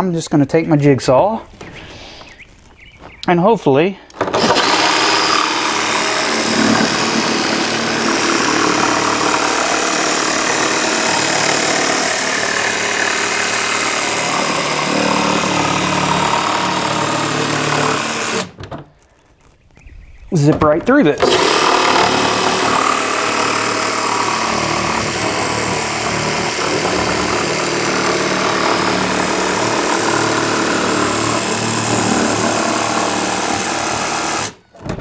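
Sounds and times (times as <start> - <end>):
jigsaw cutting plastic: 4.2 - 18.6, 21.2 - 34.6.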